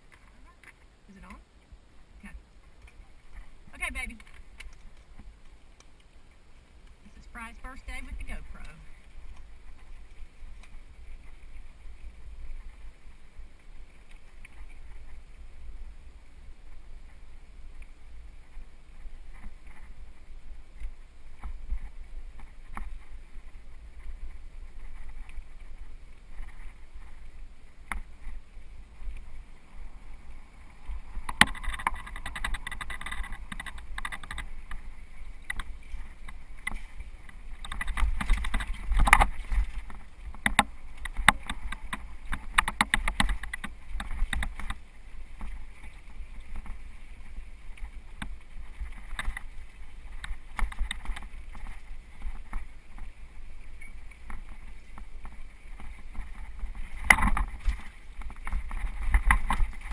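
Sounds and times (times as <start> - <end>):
bike riding low rumble: 0.0 - 59.9
bike rattling clicks and knocks: 30.8 - 59.9.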